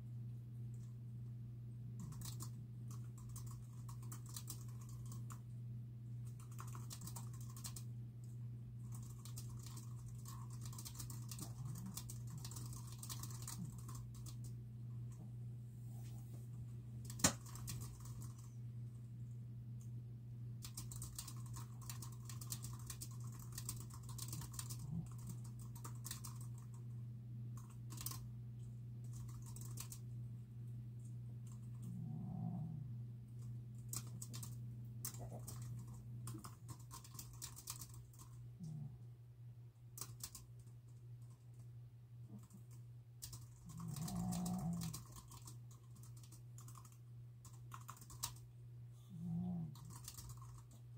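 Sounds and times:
steady low hum: 0.0s - 50.9s
keyboard typing: 2.0s - 5.4s, 6.2s - 7.9s, 8.8s - 14.6s, 17.0s - 18.5s, 20.6s - 26.8s, 27.6s - 28.3s, 29.0s - 30.0s, 33.4s - 38.8s, 40.0s - 41.6s, 42.3s - 48.5s, 49.2s - 50.8s.

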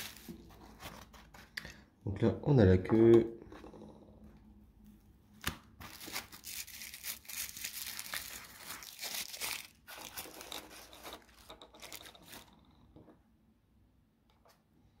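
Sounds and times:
tissue paper crinkling: 0.0s - 1.2s, 5.8s - 12.4s.

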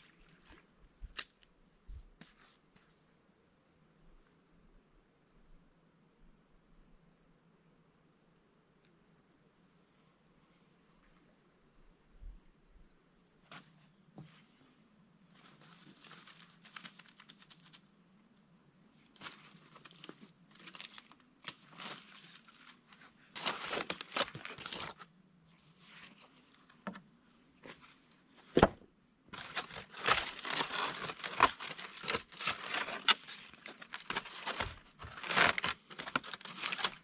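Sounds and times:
aluminium foil crinkling: 15.4s - 17.8s, 19.2s - 25.0s, 29.4s - 37.0s
corn husk tearing: 19.2s - 25.0s, 29.4s - 37.0s.

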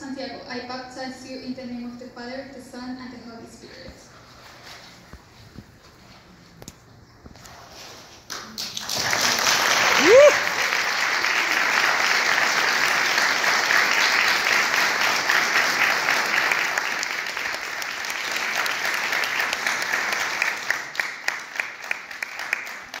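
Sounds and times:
congregation applauding: 8.3s - 23.0s.

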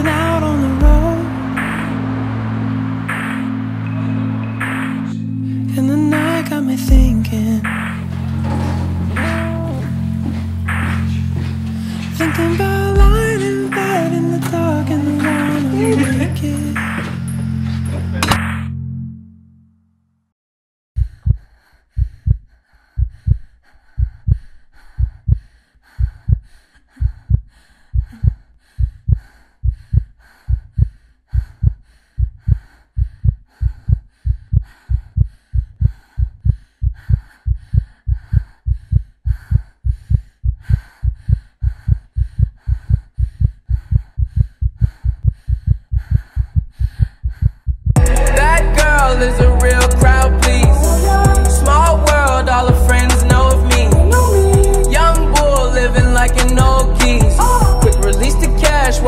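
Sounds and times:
heartbeat thumps: 0.0s - 5.0s, 6.9s - 16.9s, 21.0s - 52.0s, 52.7s - 58.2s
music: 0.0s - 19.5s, 48.0s - 59.0s.

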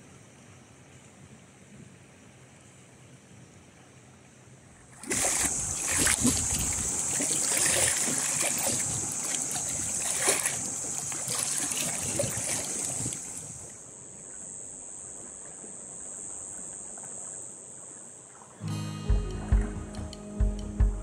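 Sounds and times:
seawater splashing among rocks: 4.8s - 13.8s.

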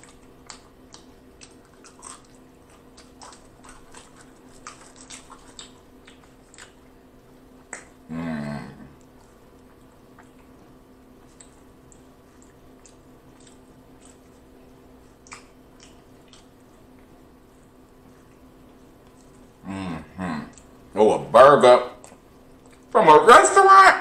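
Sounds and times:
mouth clicks and smacks eating: 0.0s - 8.0s, 9.0s - 17.2s, 18.2s - 19.6s, 20.4s - 20.9s, 22.0s - 23.0s
person humming: 8.1s - 9.0s, 19.6s - 20.6s.

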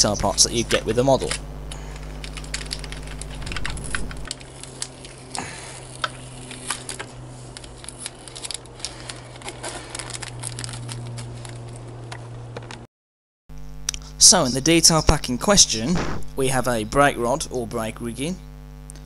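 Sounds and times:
plastic packaging crinkling: 0.5s - 12.8s.

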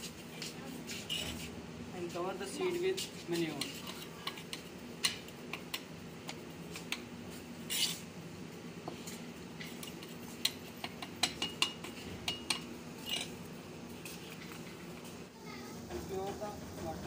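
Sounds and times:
trowel scraping in soil: 7.7s - 8.0s.

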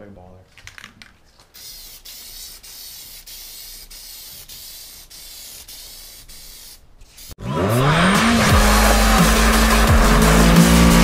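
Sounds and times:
aerosol can spraying hiss: 1.5s - 7.4s.

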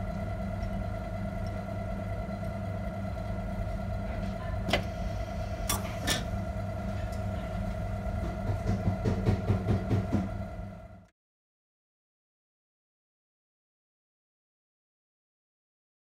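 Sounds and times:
beer dispenser humming: 0.0s - 11.1s.

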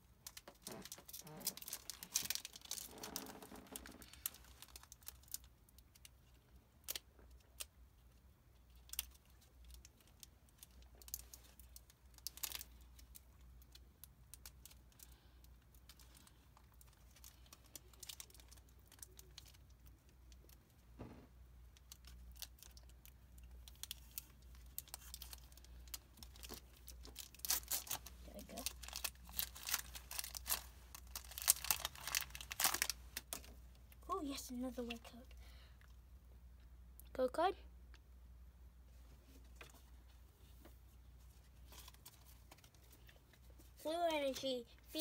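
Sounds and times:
foil pack crinkling: 0.3s - 5.5s, 8.8s - 15.3s, 21.9s - 33.6s.

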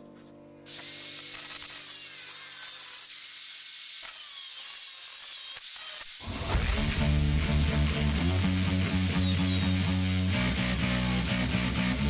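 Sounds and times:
angle grinder cutting sheet steel: 0.7s - 12.0s.

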